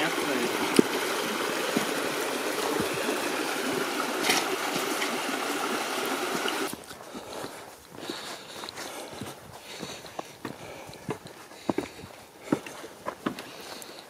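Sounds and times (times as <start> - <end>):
brook babbling over stones: 0.0 - 6.9.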